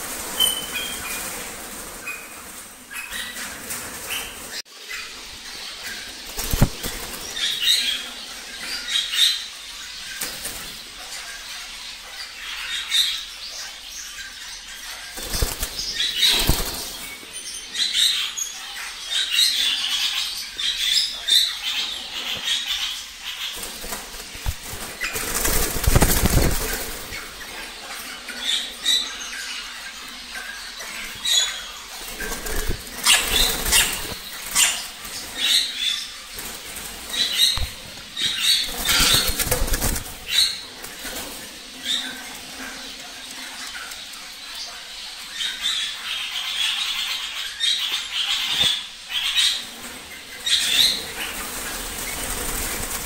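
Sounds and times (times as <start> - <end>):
birds flapping wings: 0.0 - 4.6, 6.3 - 7.4, 15.2 - 17.0, 23.6 - 27.4, 32.0 - 35.3, 36.3 - 41.4, 51.1 - 53.0.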